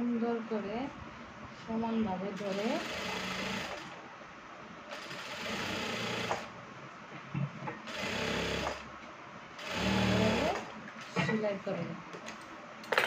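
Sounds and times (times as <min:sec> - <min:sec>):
sewing machine stitching: 0:02.4 - 0:04.0, 0:04.9 - 0:06.5, 0:07.9 - 0:08.9, 0:09.6 - 0:10.7.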